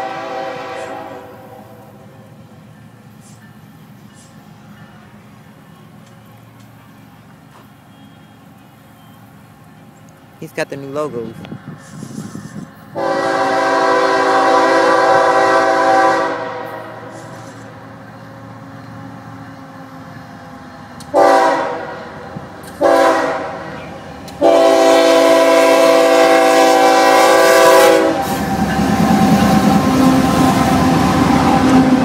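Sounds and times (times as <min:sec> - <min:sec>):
locomotive air horn blasts: 0:00.0 - 0:02.0, 0:12.9 - 0:17.6, 0:21.1 - 0:22.2, 0:22.8 - 0:23.6, 0:24.4 - 0:28.3
locomotive engine rumbling: 0:00.0 - 0:32.0.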